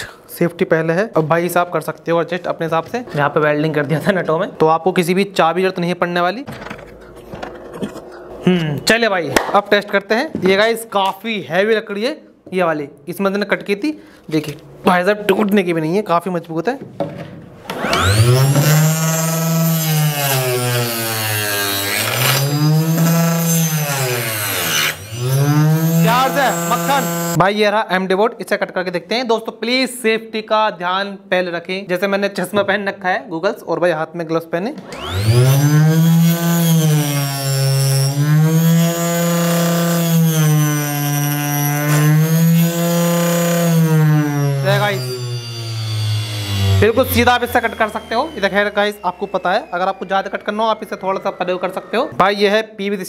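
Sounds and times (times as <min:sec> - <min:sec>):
table saw cutting wood: 0:17.6 - 0:27.4, 0:34.8 - 0:52.6.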